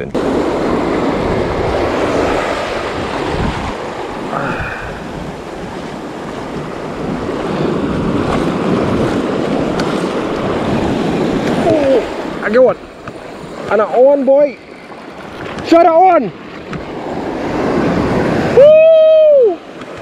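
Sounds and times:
waves washing over rocks: 0.0s - 20.0s
wind buffeting microphone: 0.0s - 20.0s.

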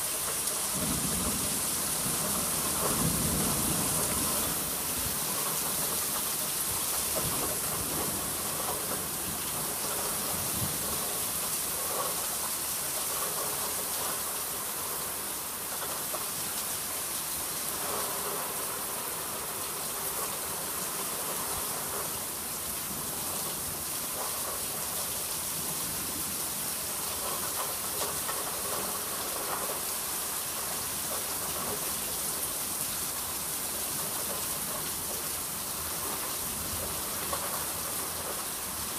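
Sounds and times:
steady rain hiss: 0.0s - 38.9s.

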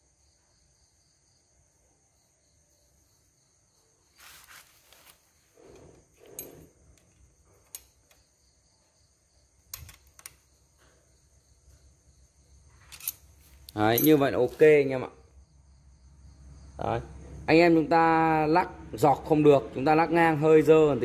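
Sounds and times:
faint high-pitched hiss: 0.0s - 17.2s
metal tool clicks and scraping: 5.7s - 8.2s, 12.8s - 14.6s.

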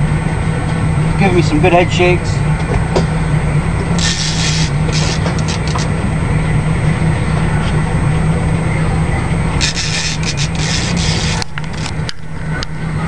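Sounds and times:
boat engine droning: 0.0s - 13.0s
raspy hiss bursts: 4.0s - 5.8s.

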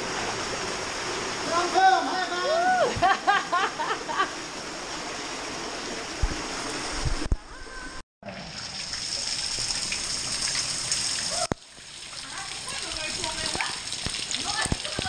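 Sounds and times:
stream water rushing: 0.0s - 7.3s.

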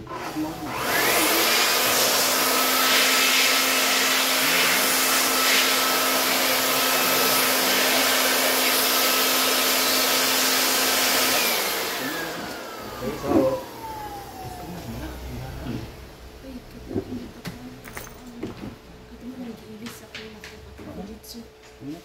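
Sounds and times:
electric air blower running: 0.0s - 16.1s.

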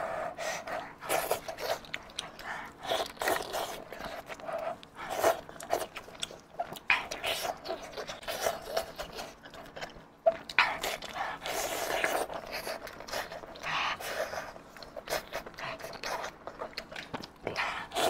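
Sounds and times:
wet chewing and sucking: 0.4s - 18.0s.

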